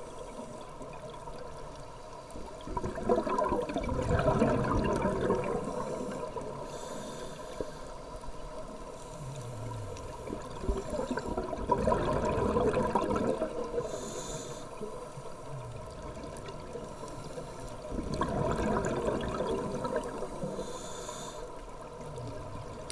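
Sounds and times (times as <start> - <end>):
regulator hiss on inhale: 0.0 - 0.9, 5.6 - 11.4, 13.6 - 15.9, 16.8 - 17.9, 20.0 - 22.0
exhaust bubbles rushing: 2.6 - 6.5, 9.9 - 13.8, 17.9 - 20.4.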